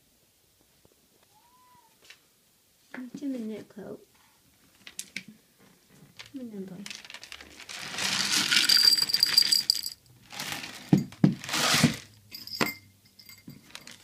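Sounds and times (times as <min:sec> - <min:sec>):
small hard objects rattling: 0:05.9 - 0:14.0.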